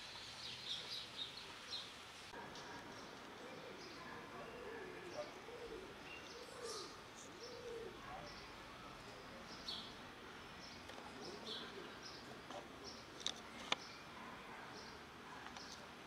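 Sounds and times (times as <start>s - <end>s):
small birds chirping: 0.1s - 16.0s
dove cooing: 2.5s - 8.3s, 11.1s - 13.0s.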